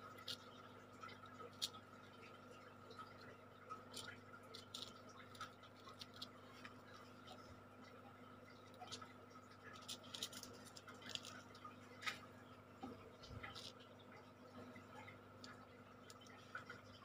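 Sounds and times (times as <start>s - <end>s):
low steady hum: 0.0s - 17.0s
toothpick scratching backing film: 9.7s - 11.6s.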